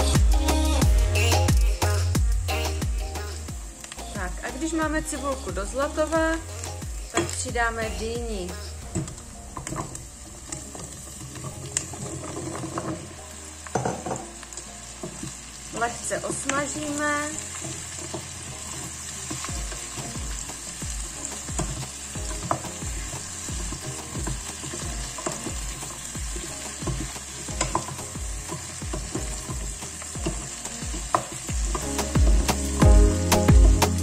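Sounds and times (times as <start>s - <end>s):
food sizzling in hot oil: 0.0s - 34.0s
wooden spoon scraping a pot: 10.6s - 13.2s.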